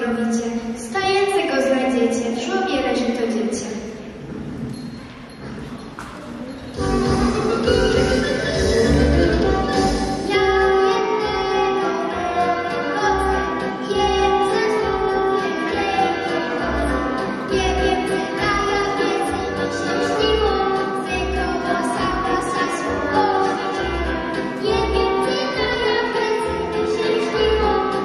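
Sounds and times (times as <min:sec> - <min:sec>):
children singing: 0:06.8 - 0:28.0.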